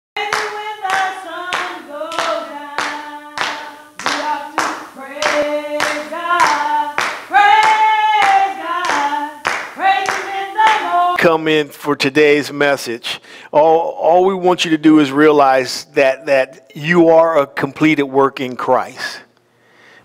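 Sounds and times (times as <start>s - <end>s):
hand clapping: 0.2s - 11.1s
person singing: 0.2s - 11.4s.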